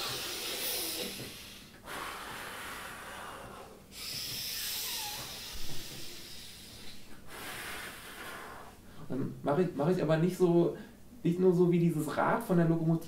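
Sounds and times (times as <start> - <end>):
person breathing forcefully: 0.0 - 9.1.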